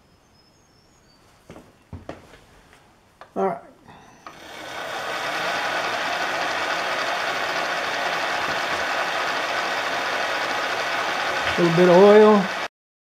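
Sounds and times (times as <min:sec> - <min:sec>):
drill spindle running: 0:04.2 - 0:12.7.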